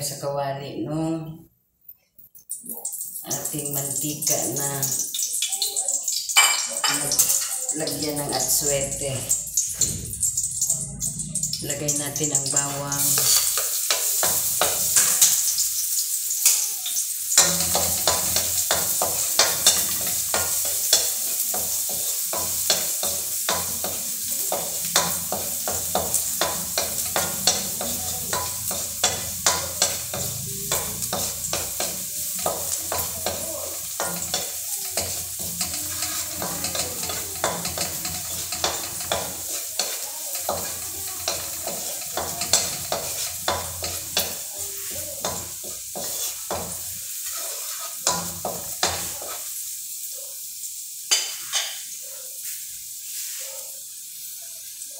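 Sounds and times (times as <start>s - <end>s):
garlic sizzling in oil: 2.4s - 54.9s
utensil scraping metal pan: 17.4s - 49.4s.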